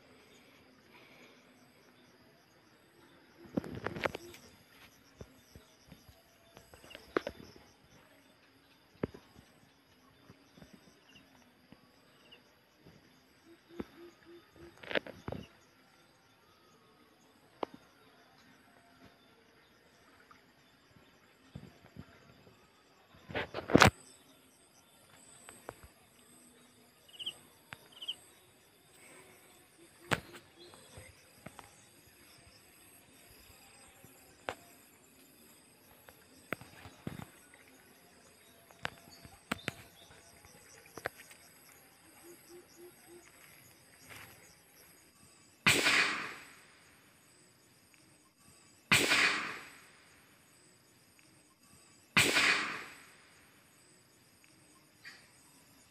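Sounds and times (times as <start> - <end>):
rifle shots: 45.7 - 46.6, 48.9 - 49.8, 52.2 - 53.0.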